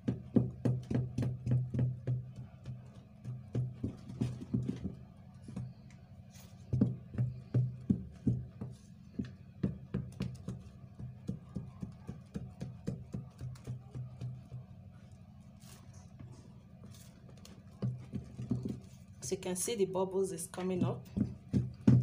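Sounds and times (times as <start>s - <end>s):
stirrer knocking and scraping bowl: 16.2s - 19.1s.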